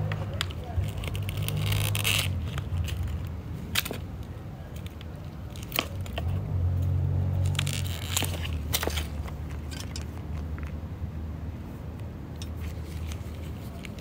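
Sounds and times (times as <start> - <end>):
dry leaves crackling and snapping: 0.1 - 10.7.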